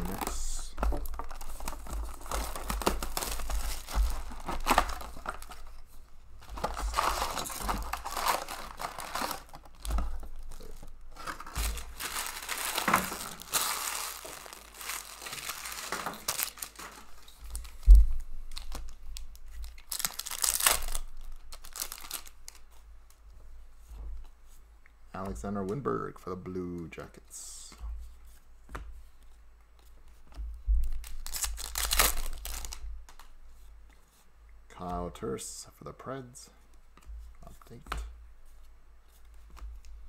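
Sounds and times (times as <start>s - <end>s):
plastic shrink wrap tearing: 0.0s - 5.8s, 6.4s - 17.8s, 18.5s - 22.7s, 30.9s - 33.3s
foil packs rustling: 0.0s - 17.9s, 18.5s - 22.6s, 30.9s - 32.8s
foil pack tearing open: 6.7s - 9.7s, 10.5s - 17.1s, 19.8s - 22.6s, 31.1s - 32.8s.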